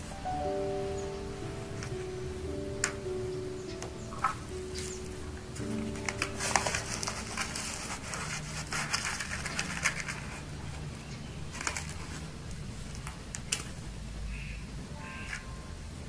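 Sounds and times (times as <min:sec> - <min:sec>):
potting mix pouring and rustling: 0:04.3 - 0:10.9.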